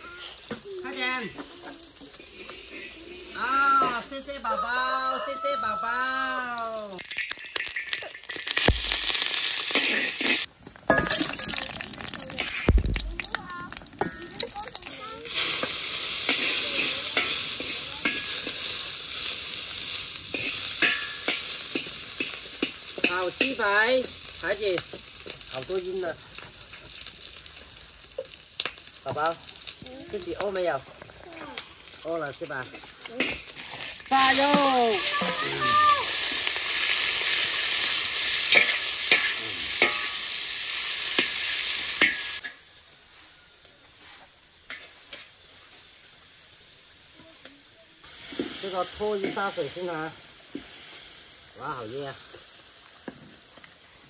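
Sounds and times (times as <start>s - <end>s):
oil sizzling in a wok: 0.0s - 54.0s
metal spatula scraping a pan: 2.1s - 3.4s, 9.7s - 11.2s, 15.6s - 18.7s, 20.3s - 22.4s, 38.5s - 40.2s.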